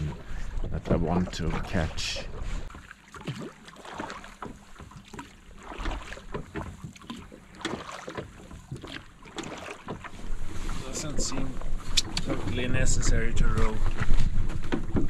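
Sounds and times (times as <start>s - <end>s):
water splashing: 0.0s - 15.0s
oars knocking in oarlocks: 2.7s - 10.3s, 13.4s - 15.0s.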